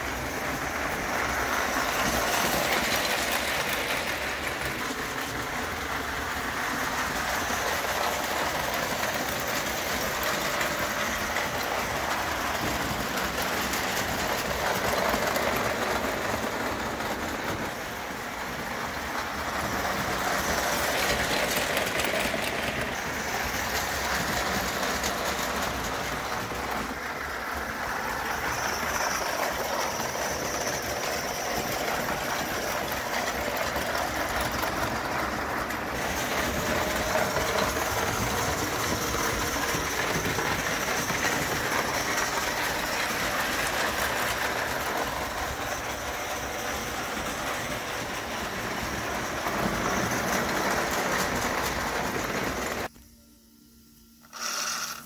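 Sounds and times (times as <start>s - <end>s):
model train wheels rolling on rails: 0.0s - 52.9s, 54.2s - 55.0s
faint high whine: 27.0s - 55.0s.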